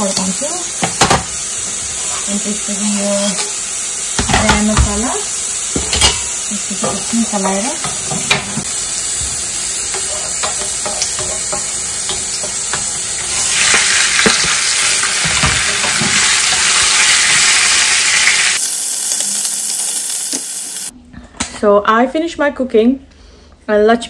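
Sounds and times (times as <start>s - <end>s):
food sizzling in hot oil: 0.0s - 21.0s
wooden spoon tapping pan: 9.2s - 13.0s.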